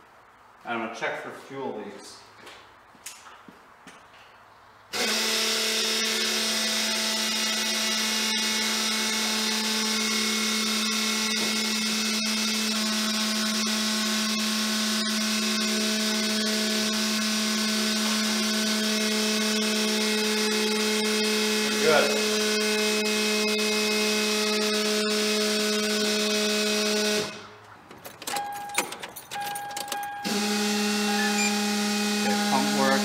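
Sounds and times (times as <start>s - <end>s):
electric fuel pump whine: 4.9s - 27.5s, 30.2s - 33.0s.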